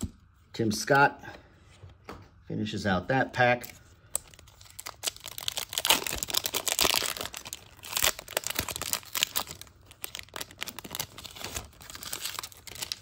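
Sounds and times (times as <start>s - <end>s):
wrapper crinkling: 4.1s - 13.0s.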